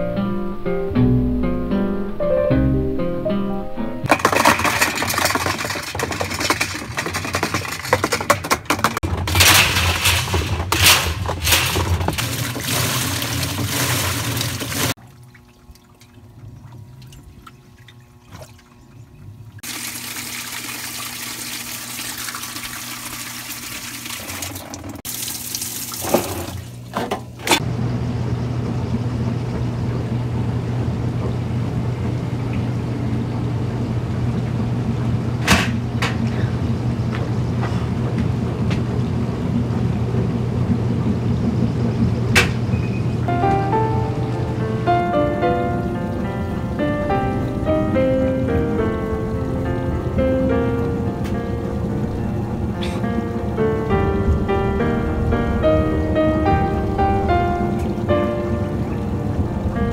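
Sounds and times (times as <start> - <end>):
washing machine humming: 4.0 - 59.9
water splashing into washer drum: 4.1 - 27.6.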